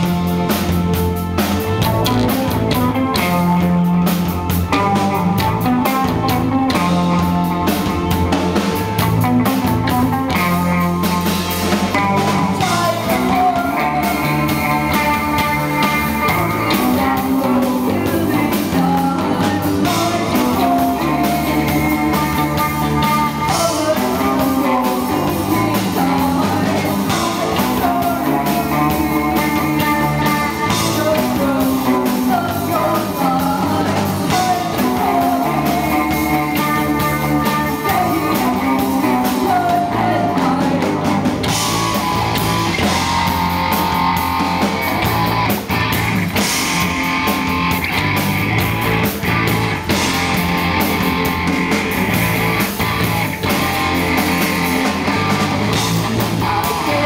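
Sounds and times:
live rock band playing: 0.0s - 57.0s
woman singing: 11.9s - 41.4s, 56.4s - 57.0s.

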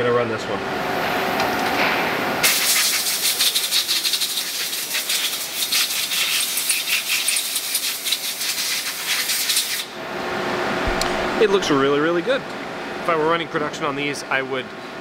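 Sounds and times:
compressed air hissing: 2.4s - 9.9s.

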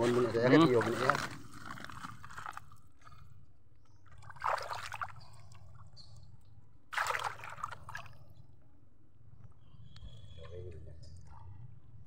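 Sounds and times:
water trickling and splashing: 0.0s - 3.2s, 3.9s - 6.3s, 6.9s - 8.4s.

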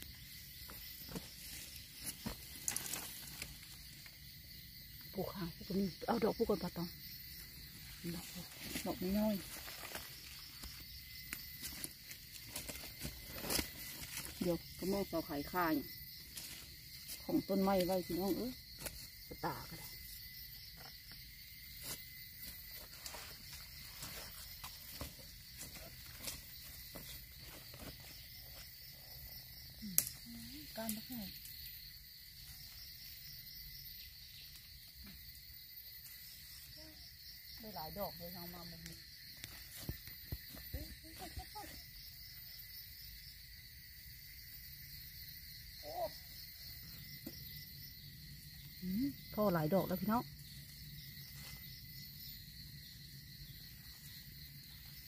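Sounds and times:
insects chorus: 0.0s - 55.0s
footsteps on dry leaves: 22.5s - 28.2s.

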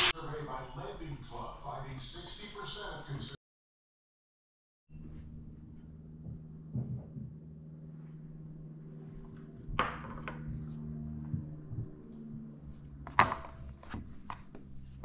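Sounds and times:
steady low hum: 5.0s - 15.0s.

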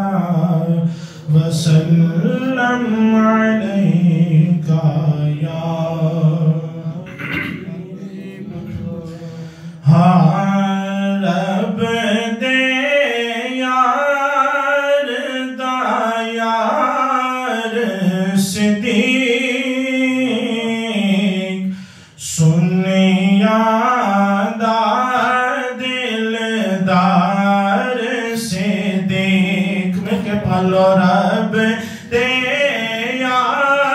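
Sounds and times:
man singing devotional chant: 0.0s - 33.9s.

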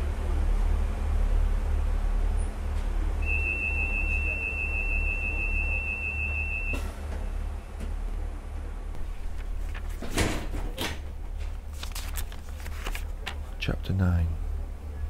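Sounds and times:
high-pitched whistle tone: 3.2s - 6.8s.

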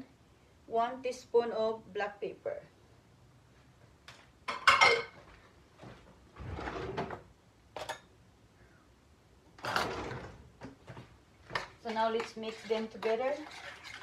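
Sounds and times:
drawers and cupboard doors: 6.3s - 7.3s, 9.6s - 11.2s.

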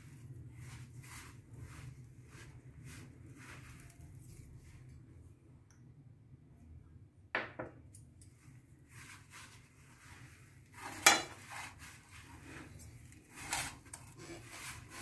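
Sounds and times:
hands rubbing dough in bowl: 0.0s - 5.2s, 8.4s - 15.0s.

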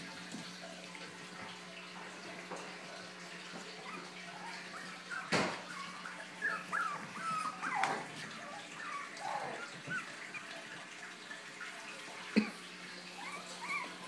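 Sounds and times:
puppies whimpering and yipping: 3.1s - 14.0s.

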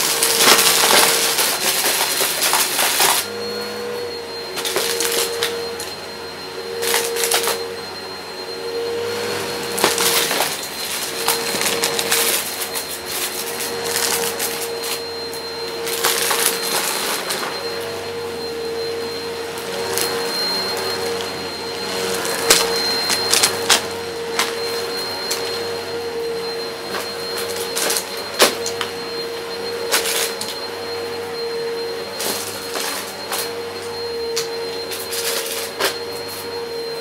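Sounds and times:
cardboard crunching in vacuum: 0.0s - 3.3s, 4.6s - 5.5s, 9.6s - 17.8s, 19.8s - 25.4s
upright vacuum running: 0.0s - 37.0s.

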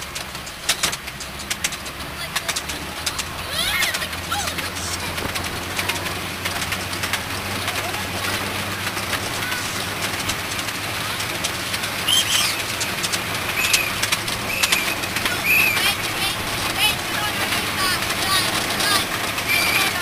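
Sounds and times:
locomotive engine hum: 0.0s - 20.0s
train wheels rumbling and clicking: 0.0s - 20.0s.

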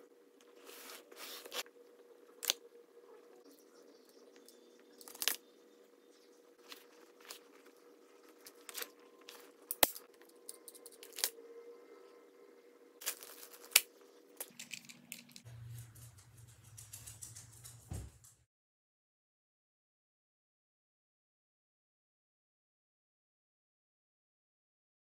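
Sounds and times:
faint steady hum: 0.0s - 18.3s.

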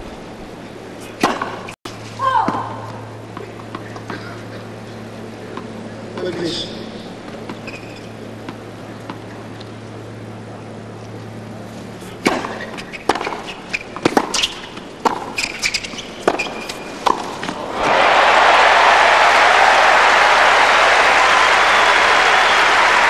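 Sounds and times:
racket hitting tennis ball: 1.0s - 1.7s, 12.2s - 17.7s
tennis ball bouncing: 1.2s - 1.7s, 7.2s - 9.7s, 12.2s - 17.6s.

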